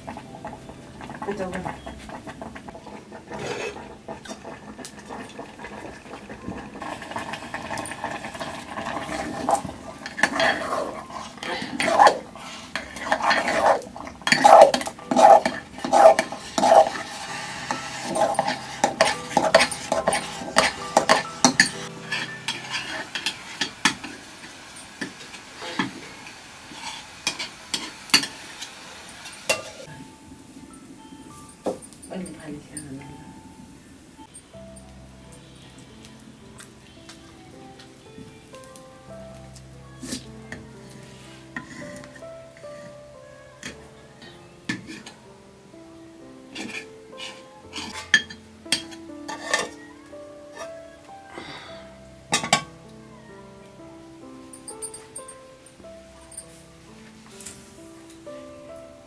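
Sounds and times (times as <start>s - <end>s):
metal paddle scraping pot: 0.2s - 26.0s, 46.5s - 49.8s
steel dishes clinking: 7.2s - 26.0s, 26.8s - 28.4s, 29.2s - 29.9s, 46.6s - 49.8s.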